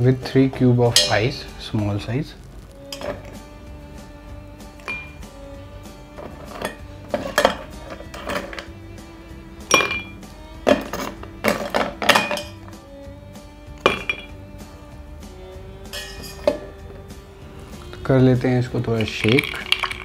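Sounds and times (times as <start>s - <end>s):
soft background music: 0.0s - 20.0s
ice cubes clinking in glass: 19.0s - 20.0s.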